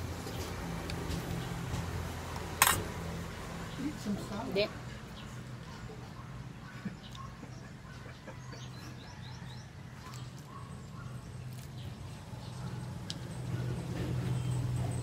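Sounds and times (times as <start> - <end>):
birds chirping: 3.6 - 15.0.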